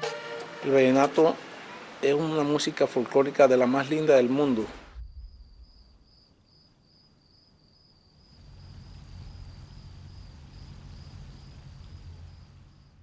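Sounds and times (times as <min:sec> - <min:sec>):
low hum: 0:04.8 - 0:06.1.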